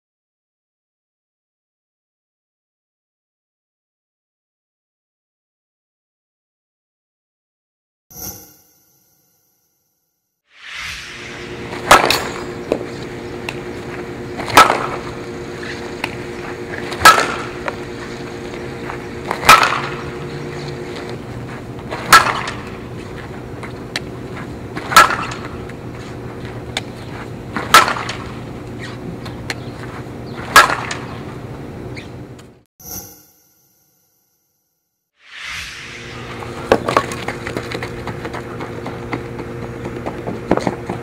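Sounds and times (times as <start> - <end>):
steady background noise: 10.8 - 32.6
bat cracking on ball: 11.8 - 13.6, 14.4 - 15.2, 16.8 - 17.8, 19.3 - 20.1, 21.9 - 22.8, 24.8 - 25.6, 27.6 - 28.4, 30.4 - 31.2.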